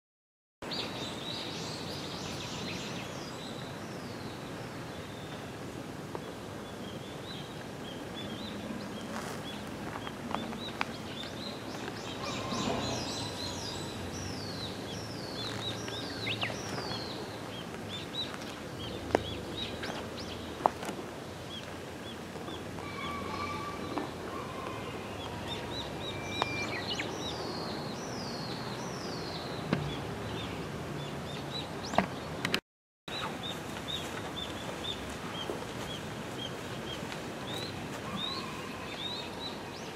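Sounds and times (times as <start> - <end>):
outdoor background noise: 0.6 - 39.9
small birds chirping: 0.6 - 39.9
whistled bird notes: 22.8 - 27.7.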